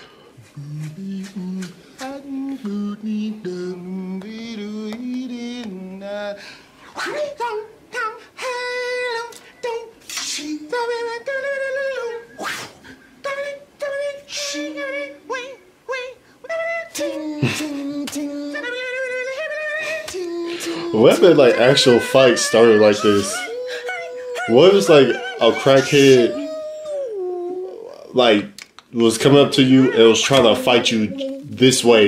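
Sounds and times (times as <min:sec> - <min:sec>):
men beatboxing fight sounds: 0:00.4 - 0:02.9, 0:09.3 - 0:11.7, 0:12.3 - 0:14.6, 0:16.5 - 0:28.8.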